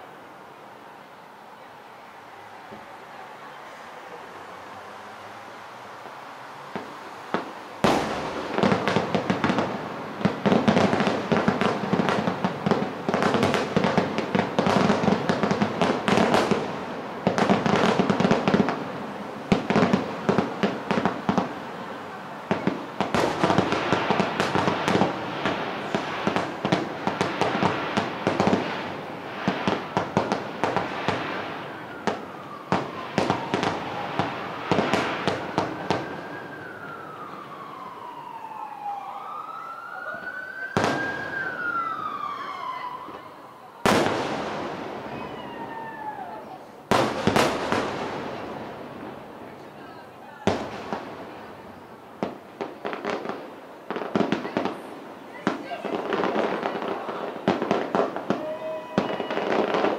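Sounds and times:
fireworks bursting and crackling: 2.6 - 38.8, 40.0 - 59.9
siren rising and falling: 31.4 - 43.9, 45.1 - 46.5.

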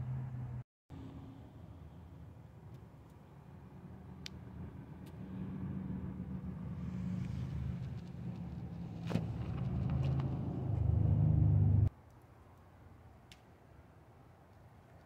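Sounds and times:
vehicle engine rumble: 0.0 - 11.9.

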